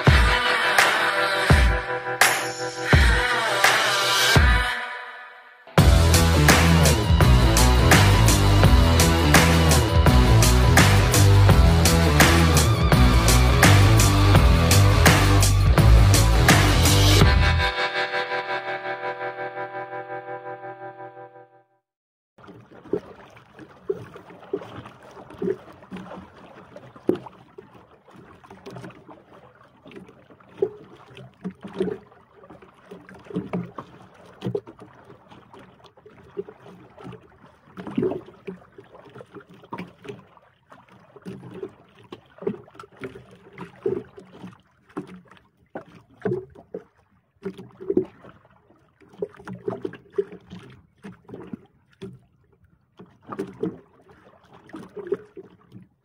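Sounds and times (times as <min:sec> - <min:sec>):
wash of water: 0:00.0 - 0:04.7, 0:05.8 - 0:17.6, 0:22.4 - 0:55.9
water knocking against boat hull: 0:29.9 - 0:48.4, 0:49.0 - 0:52.3.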